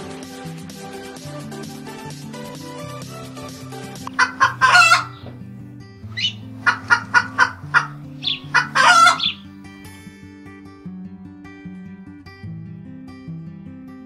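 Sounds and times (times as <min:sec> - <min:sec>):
background music: 0:00.0 - 0:10.1
loud animal calls: 0:04.1 - 0:05.3, 0:06.1 - 0:09.5.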